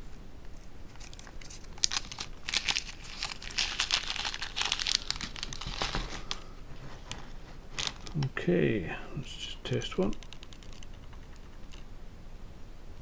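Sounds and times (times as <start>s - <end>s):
plastic bag crinkling: 1.0s - 8.2s.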